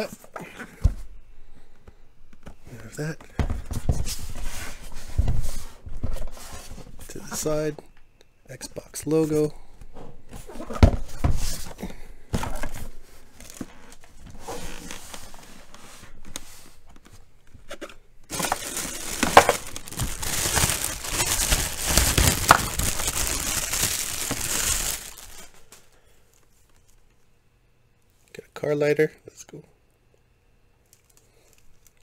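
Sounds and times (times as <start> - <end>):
plastic bag crinkling: 18.3 - 25.9.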